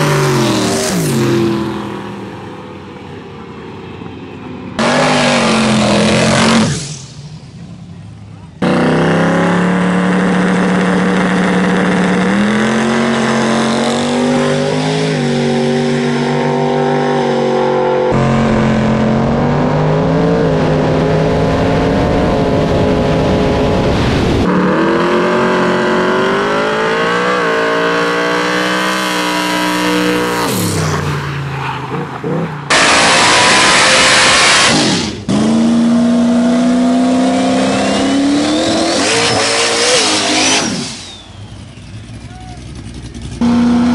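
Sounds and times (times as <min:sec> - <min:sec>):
race car engines revving: 0:00.0 - 0:43.9
loud rushing noise: 0:11.3 - 0:25.2
car launching and pulling away: 0:17.3 - 0:43.9.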